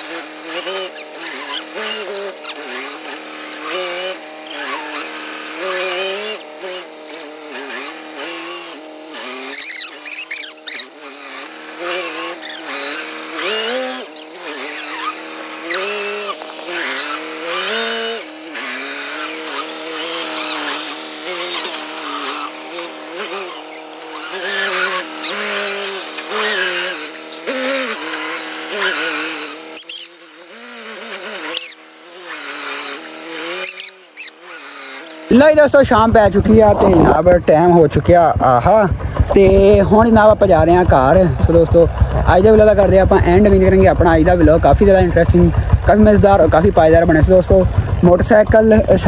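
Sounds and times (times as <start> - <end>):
tractor diesel engine under load: 35.3 - 49.0.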